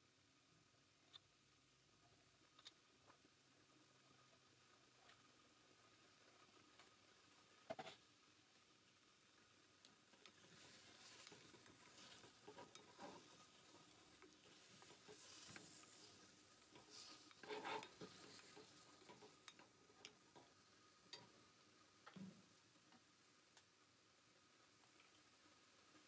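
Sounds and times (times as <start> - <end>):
light sizzle: 0.0 - 26.0
spoon scraping in metal pan: 16.8 - 19.3.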